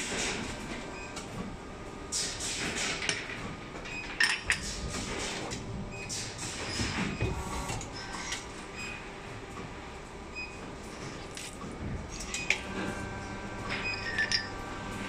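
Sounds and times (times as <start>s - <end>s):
injection moulding machine running: 11.6s - 15.0s.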